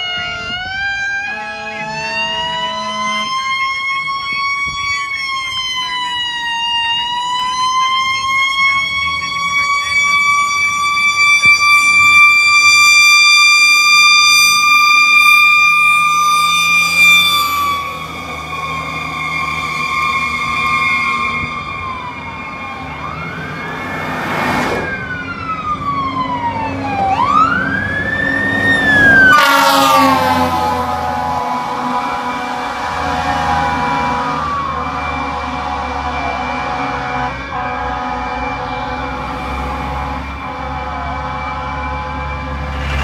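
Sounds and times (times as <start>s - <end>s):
fire truck mechanical siren: 0.0s - 43.0s
air horn blasts: 1.2s - 3.8s, 13.9s - 21.9s, 28.9s - 43.0s.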